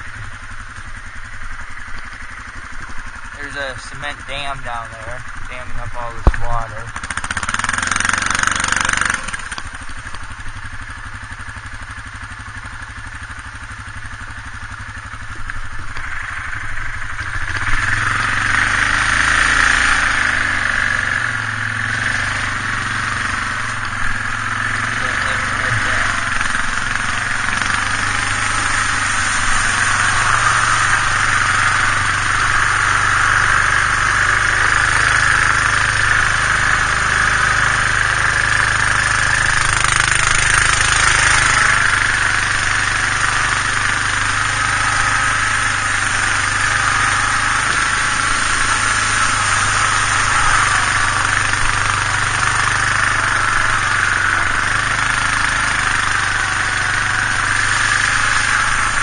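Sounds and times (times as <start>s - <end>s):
quad bike engine running: 0.0s - 59.0s.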